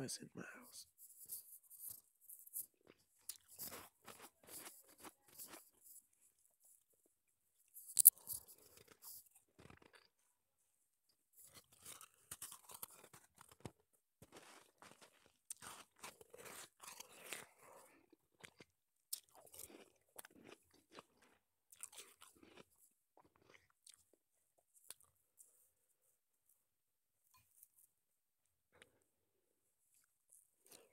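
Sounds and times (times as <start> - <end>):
crunching and chewing ice: 1.2 - 5.8, 7.7 - 10.2, 11.4 - 25.5.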